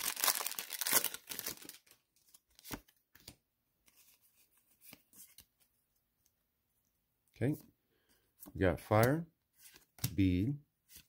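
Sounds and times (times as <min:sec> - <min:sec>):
foil wrapper crinkling and tearing: 0:00.0 - 0:02.1.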